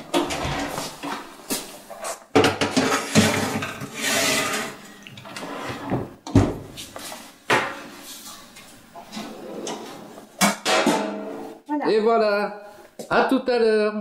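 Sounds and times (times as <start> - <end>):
baking tray scraping on oven rack: 2.6 - 6.0.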